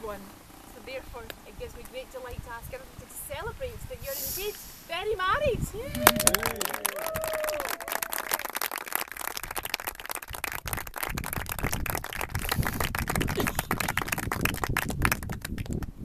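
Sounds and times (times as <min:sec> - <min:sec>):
people applauding: 0:05.9 - 0:15.9
low rumble on microphone: 0:09.4 - 0:16.0.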